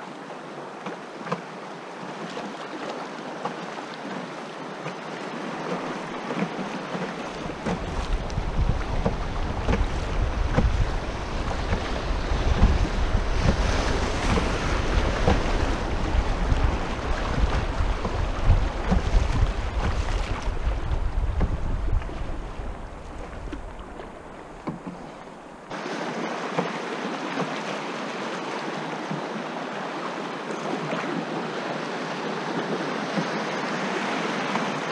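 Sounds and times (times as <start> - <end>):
river current rushing and splashing: 0.0 - 34.9
wind buffeting microphone: 7.3 - 24.8.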